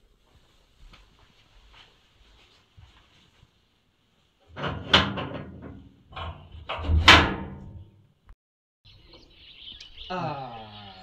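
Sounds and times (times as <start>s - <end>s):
door rattling and clattering: 4.5s - 7.8s
loud door bangs: 4.6s - 7.9s.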